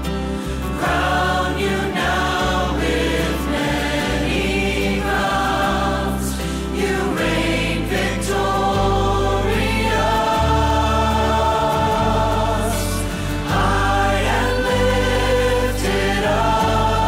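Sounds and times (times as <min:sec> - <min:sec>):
group singing worship song: 0:00.0 - 0:17.0
sustained bass notes: 0:00.0 - 0:17.0.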